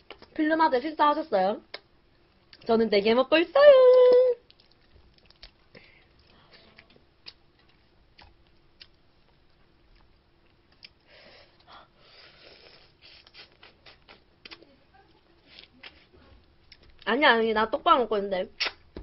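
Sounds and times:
quiet chewing: 1.7s - 2.7s, 3.9s - 17.1s.

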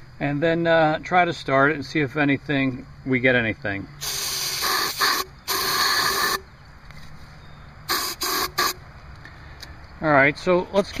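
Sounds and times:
aerosol spray hissing: 4.0s - 6.4s, 7.9s - 8.8s.

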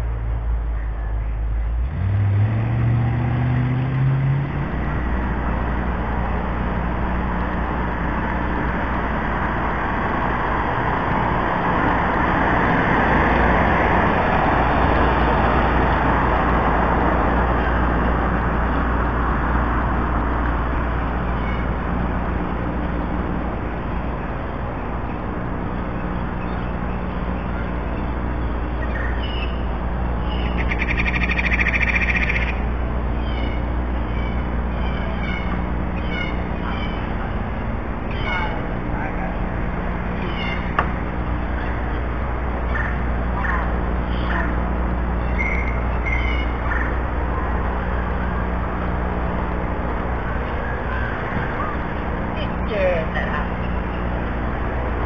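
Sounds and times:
car engine accelerating: 0.0s - 28.9s
car road noise: 0.0s - 55.0s.

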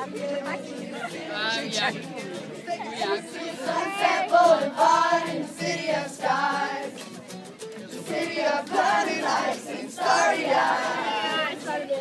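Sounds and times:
voices singing a pop song: 0.0s - 7.2s, 7.8s - 12.0s.

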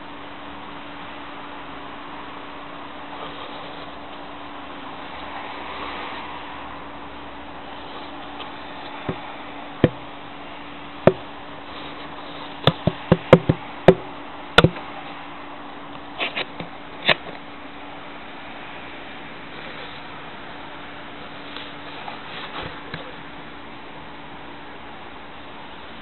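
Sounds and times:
sharp irregular taps and clicks: 12.6s - 14.0s.

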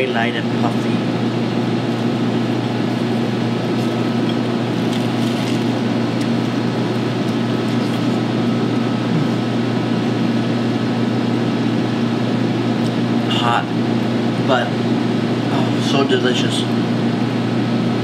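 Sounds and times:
kitchen equipment humming: 0.0s - 18.0s
pastry crunching while chewed: 2.7s - 9.4s.

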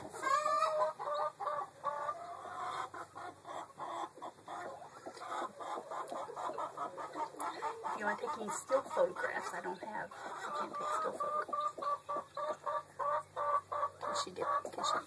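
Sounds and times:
chickens clucking: 0.0s - 15.0s
long chicken call: 0.1s - 4.7s.

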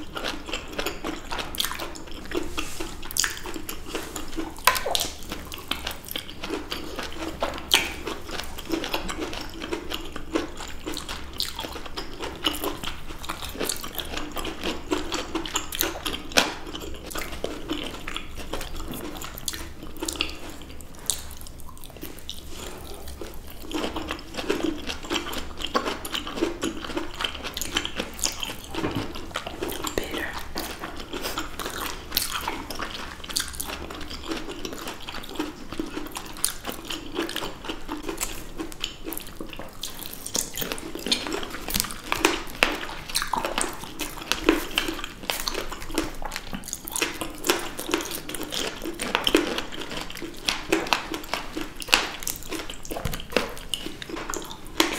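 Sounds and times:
wet fruit bites and chewing: 0.0s - 54.9s.

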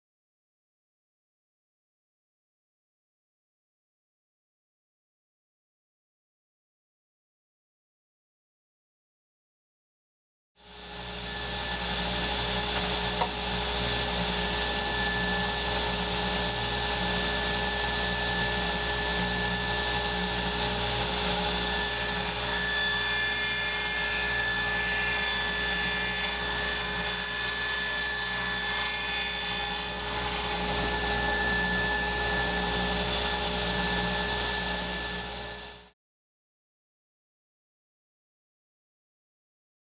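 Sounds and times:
table saw running: 10.6s - 35.9s
saw blade cutting board: 11.2s - 16.5s, 21.0s - 35.6s.

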